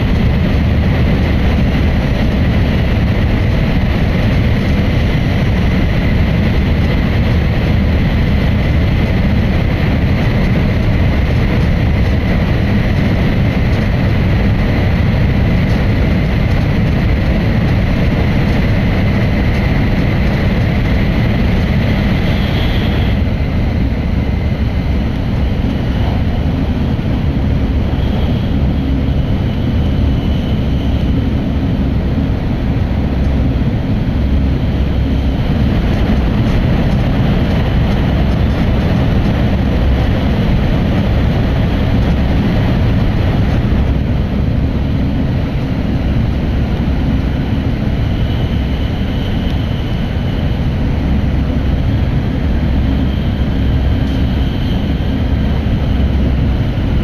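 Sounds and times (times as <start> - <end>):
train rumble inside carriage: 0.0 - 57.0
faint high whine: 18.8 - 42.0, 42.7 - 57.0.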